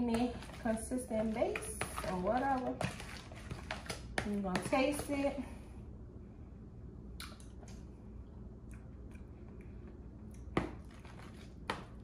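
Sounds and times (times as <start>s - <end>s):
faint chewing and mouth sounds: 7.2s - 12.0s.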